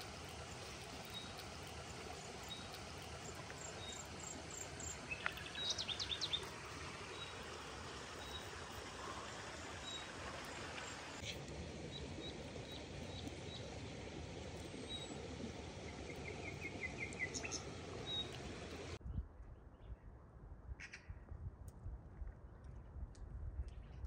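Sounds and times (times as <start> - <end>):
birds chirping: 0.0 - 7.6, 8.2 - 19.0.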